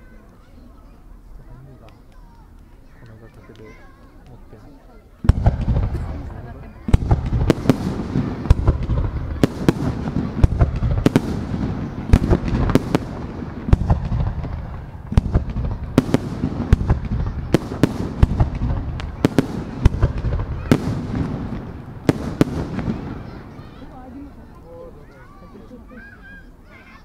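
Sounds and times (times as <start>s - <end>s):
low rumble of echoing reports: 0.0s - 27.0s
fireworks bursting: 5.2s - 25.3s.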